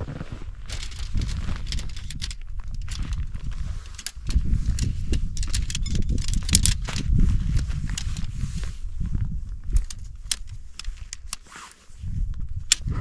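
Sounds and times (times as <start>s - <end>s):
steady low rumble: 0.0s - 11.3s, 12.0s - 13.0s
tent poles clicking and clattering: 0.6s - 12.9s.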